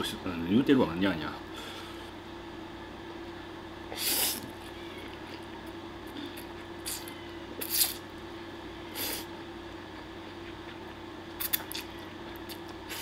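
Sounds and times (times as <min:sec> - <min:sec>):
person slurping spaghetti: 0:06.8 - 0:08.0.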